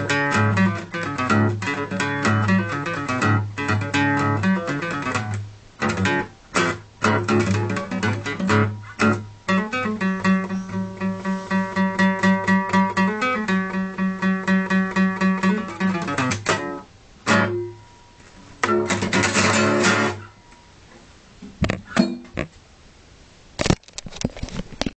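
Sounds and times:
acoustic blues guitar: 0:00.0 - 0:21.0.

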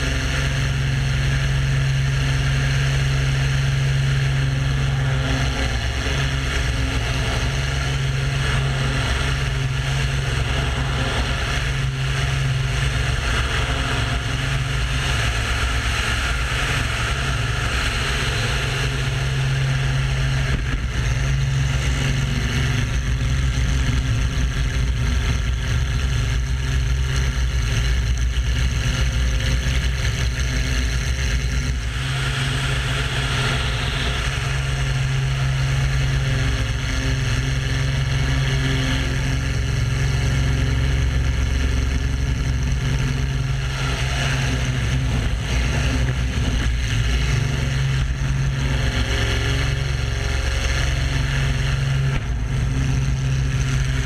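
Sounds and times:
propeller plane engine: 0:00.0 - 0:54.0
air rushing over microphone: 0:42.1 - 0:54.0.

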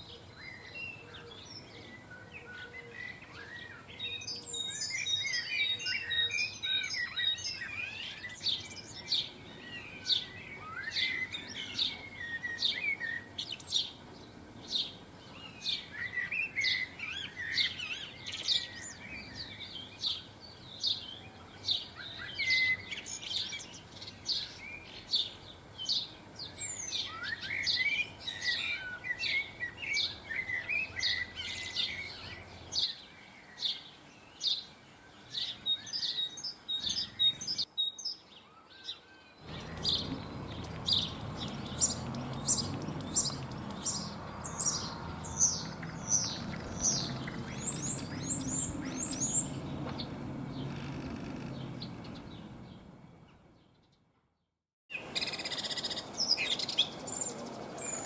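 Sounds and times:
songbirds chirping and twittering: 0:00.0 - 0:58.0.

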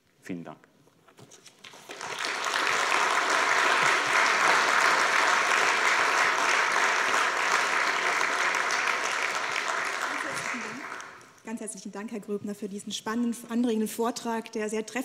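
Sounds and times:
audience applauding: 0:01.6 - 0:11.4.

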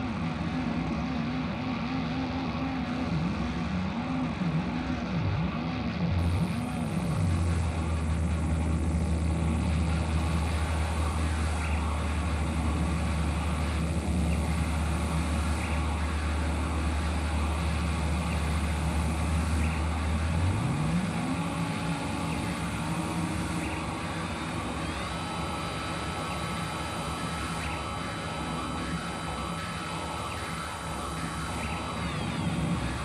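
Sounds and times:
heavy low drone: 0:00.0 - 0:33.0.

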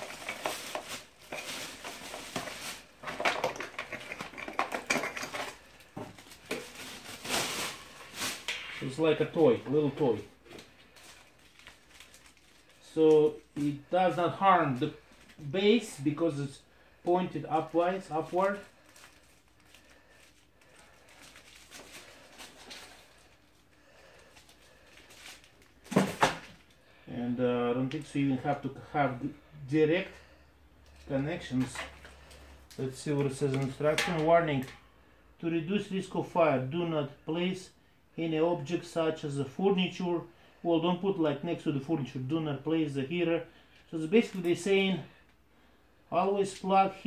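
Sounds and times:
cardboard rustling and scraping: 0:00.0 - 0:09.8
plastic packaging crinkling: 0:00.0 - 0:14.0, 0:17.5 - 0:26.8.

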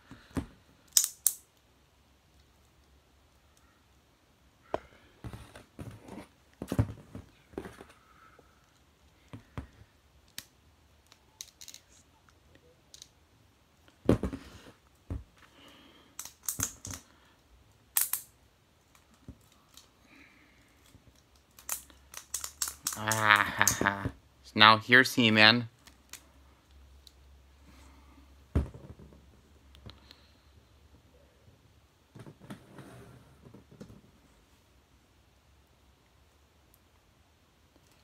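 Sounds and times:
plastic toys clicking and clacking: 0:11.0 - 0:12.0, 0:21.1 - 0:23.8.

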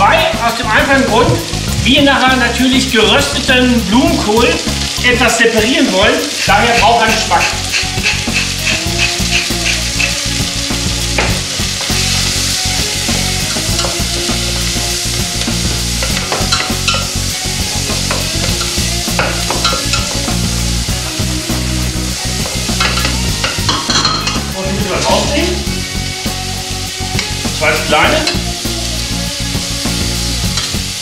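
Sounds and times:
cauliflower sizzling in a pot: 0:00.0 - 0:31.0
pepper mill grinding: 0:06.2 - 0:10.4
wooden spatula scraping a pan: 0:06.2 - 0:10.4.

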